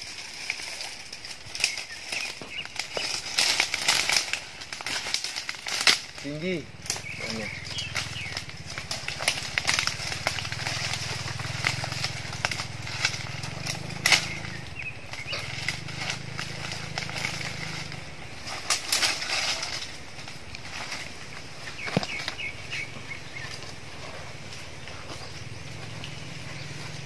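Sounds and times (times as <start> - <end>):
leaves and twigs rustling: 0.0 - 27.0
low steady rumble: 0.0 - 27.0.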